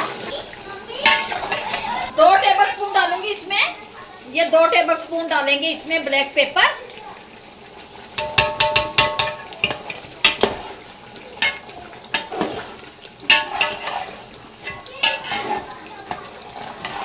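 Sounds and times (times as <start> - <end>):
ladle scraping metal pot: 1.0 - 2.1, 8.2 - 10.8, 11.4 - 17.0.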